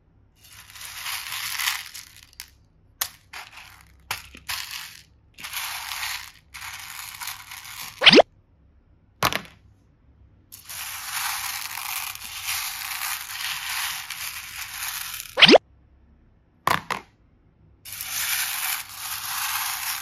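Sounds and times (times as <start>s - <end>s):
plastic beads rustling and clattering: 0.4s - 8.2s, 10.6s - 15.6s, 17.9s - 20.0s.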